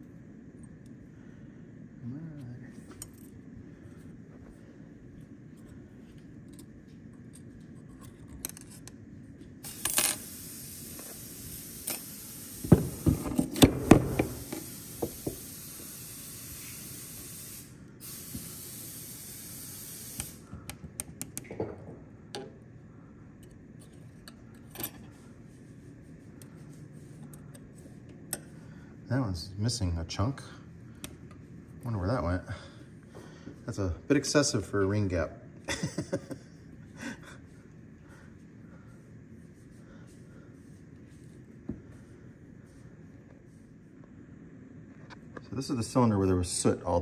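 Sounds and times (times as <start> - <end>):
steady hiss: 8.8 - 20.8, 24.3 - 47.0
metal parts clinking on workbench: 24.3 - 25.1.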